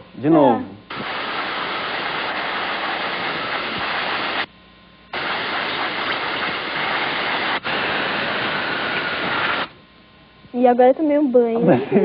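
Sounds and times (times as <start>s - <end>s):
compressed air hissing: 0.9s - 4.5s, 5.1s - 9.8s.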